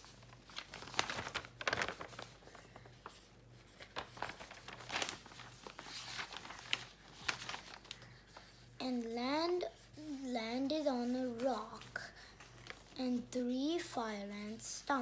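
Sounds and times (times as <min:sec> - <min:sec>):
paper rustling and crinkling: 0:00.0 - 0:09.2, 0:11.0 - 0:13.2.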